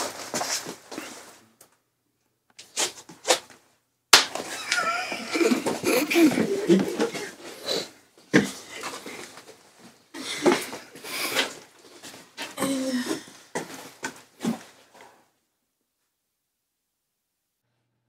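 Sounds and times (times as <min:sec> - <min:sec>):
people stifling laughter: 0:04.5 - 0:07.4.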